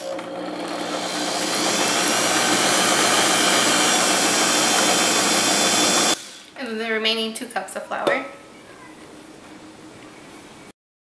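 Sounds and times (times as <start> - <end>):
stand mixer motor running: 0.0 - 6.2.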